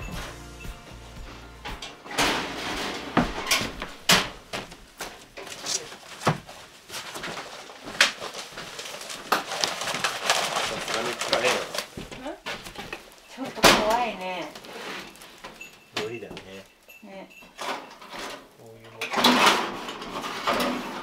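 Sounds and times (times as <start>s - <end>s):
sharp knocks and thuds: 0.0s - 5.2s
cardboard and papers rustling: 2.4s - 16.6s.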